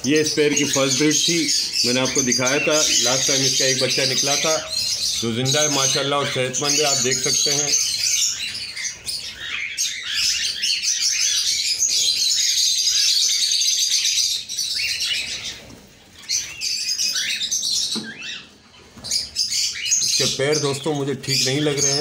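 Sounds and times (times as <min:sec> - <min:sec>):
cockatiels chirping and calling: 0:00.0 - 0:22.0.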